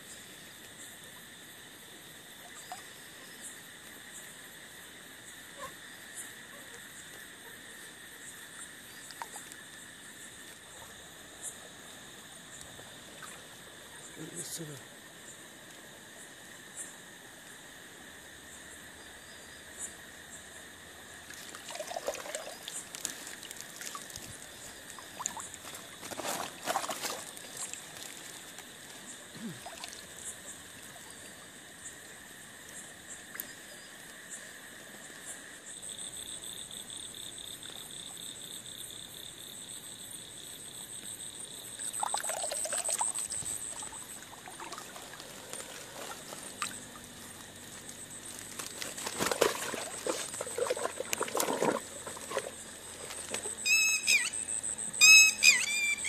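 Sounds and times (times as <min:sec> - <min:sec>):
insects and frogs calling: 0:00.0 - 0:56.0
water splashing and trickling: 0:21.1 - 0:31.5, 0:41.8 - 0:53.8.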